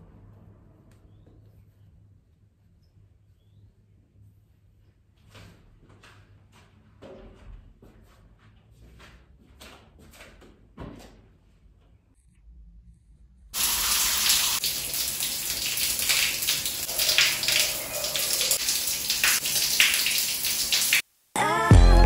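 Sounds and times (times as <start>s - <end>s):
shower water spraying on tiles: 13.6s - 21.1s.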